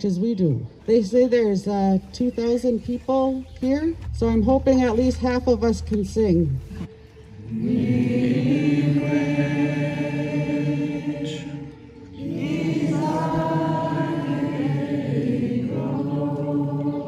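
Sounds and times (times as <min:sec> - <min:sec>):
group of voices chanting: 0:07.3 - 0:17.0.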